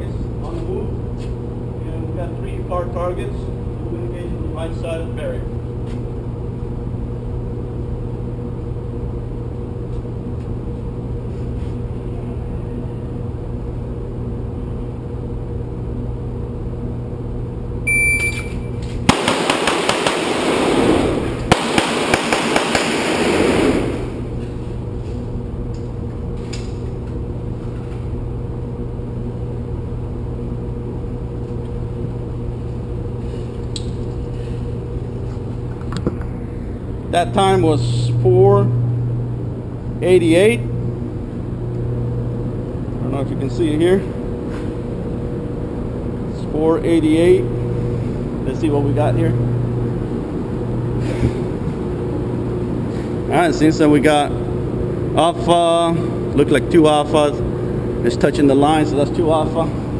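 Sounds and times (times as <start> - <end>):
steady background hum: 0.0 - 59.9
shot-timer beep: 17.9 - 18.7
pistol shots echoing: 19.1 - 20.9, 21.5 - 23.6.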